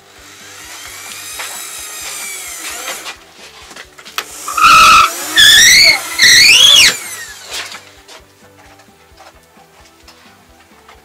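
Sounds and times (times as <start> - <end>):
cordless drill whining: 0.0 - 3.2, 4.2 - 7.9.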